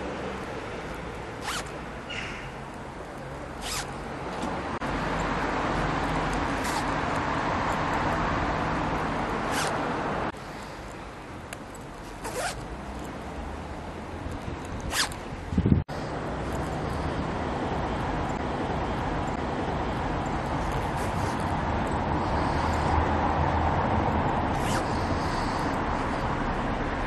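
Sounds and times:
steady background noise: 0:00.0 - 0:27.0
zipper rasps: 0:01.4 - 0:01.7, 0:03.6 - 0:03.9, 0:06.5 - 0:07.0, 0:09.5 - 0:09.8, 0:12.2 - 0:12.6, 0:14.9 - 0:15.2, 0:24.5 - 0:25.7.

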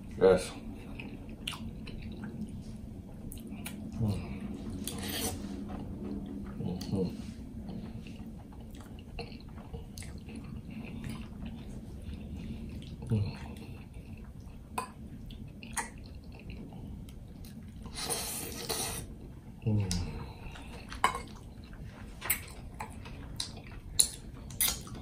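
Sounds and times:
wet mouth clicks and smacks: 0:01.4 - 0:02.4, 0:22.3 - 0:25.0
chewing and slurping noodles: 0:04.8 - 0:06.0, 0:17.4 - 0:19.1.

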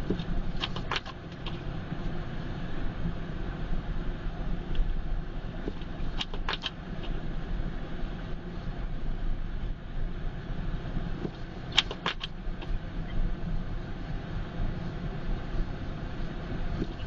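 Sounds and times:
car engine and tyres rumbling: 0:00.0 - 0:17.0
sharp clicks: 0:00.2 - 0:01.6, 0:06.2 - 0:06.8, 0:11.7 - 0:12.7.

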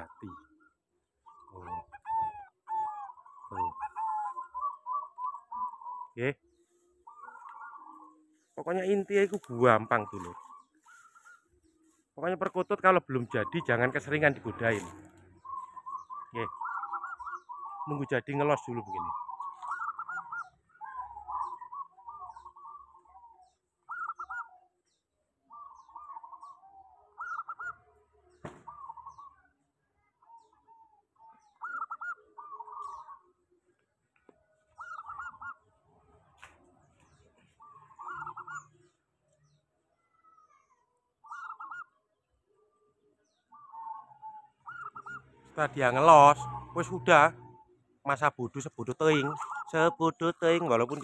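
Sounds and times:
doves cooing: 0:00.0 - 0:51.0
faint high chirps: 0:03.0 - 0:51.0.

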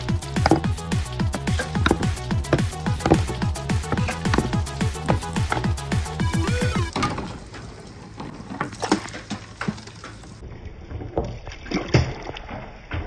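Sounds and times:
ball rolling and knocking: 0:00.0 - 0:11.4
ball splashing into water: 0:11.1 - 0:13.0.

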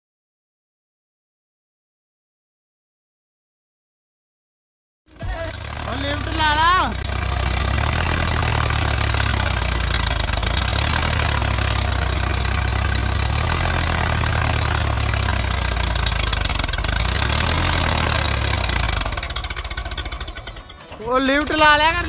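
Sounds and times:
tractor diesel engine under load: 0:05.1 - 0:22.0.

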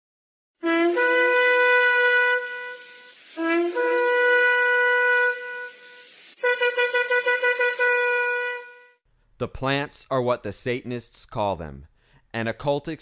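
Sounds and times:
shofar blasts: 0:00.6 - 0:09.0.

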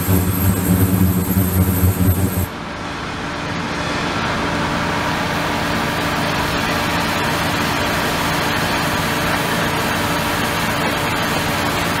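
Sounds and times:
ultrasonic cleaner machine hum: 0:00.0 - 0:02.6.

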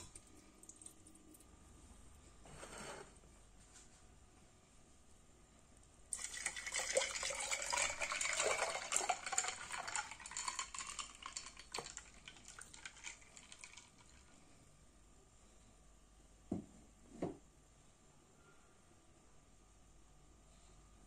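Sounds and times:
juice pouring into glass jar: 0:06.1 - 0:14.3.

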